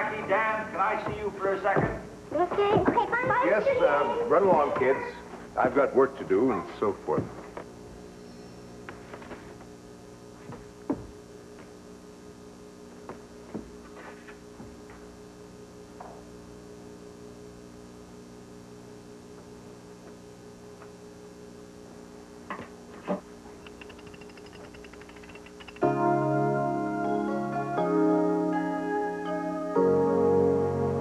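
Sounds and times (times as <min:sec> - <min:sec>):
electrical mains hum: 0:00.0 - 0:31.0
faint knocks and clicks: 0:22.5 - 0:25.8.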